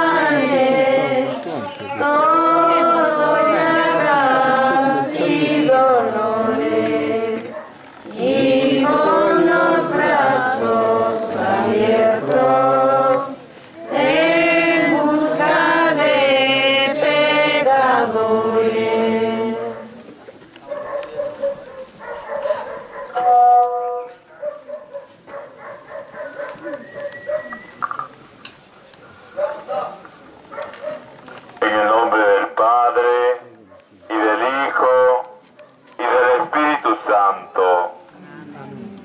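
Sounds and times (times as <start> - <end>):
group singing a hymn: 0.0 - 20.1.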